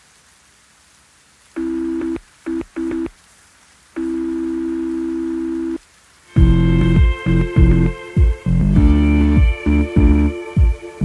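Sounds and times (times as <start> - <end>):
faint steady hiss: 0.0 - 11.0
buzzy electronic tone: 6.4 - 11.0.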